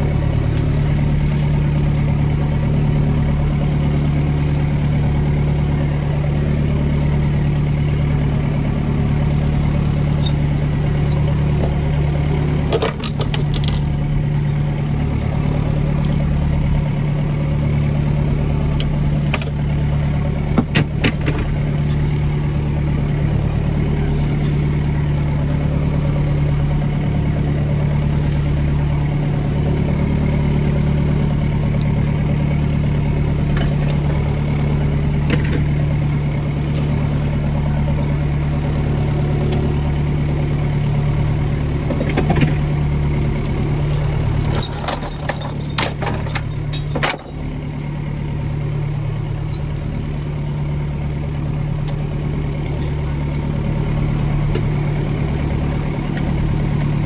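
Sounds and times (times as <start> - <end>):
boat engine running at low revs: 0.0 - 57.0
sharp knocks and clatters: 20.5 - 21.6, 44.3 - 47.4.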